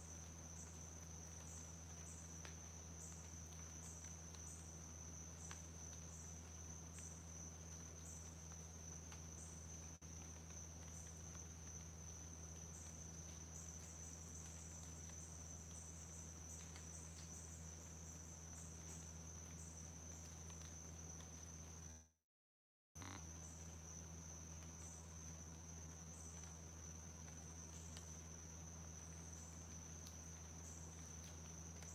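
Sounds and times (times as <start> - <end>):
bright insect chirp: 0.0 - 22.0, 23.0 - 31.9
faint scattered ticks: 0.0 - 22.0, 23.0 - 31.9
insects trilling: 0.0 - 22.0, 23.0 - 31.9.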